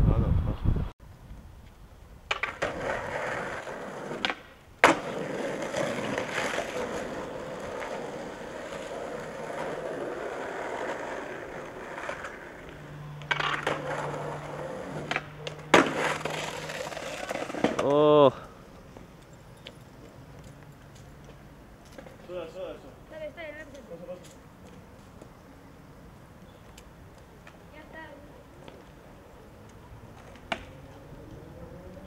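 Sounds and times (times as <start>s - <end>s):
skateboard wheels rolling on asphalt: 1.1s - 32.0s
skateboard clacks: 2.3s - 18.0s, 30.1s - 31.0s.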